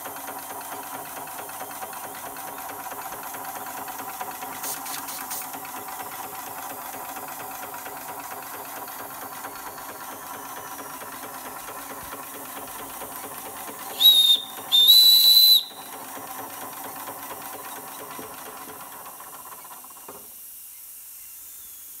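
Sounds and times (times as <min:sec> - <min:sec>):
toy steam engine running: 0:00.0 - 0:20.6
steam whistle blasts: 0:13.9 - 0:15.9
faint steam hiss: 0:19.6 - 0:22.0.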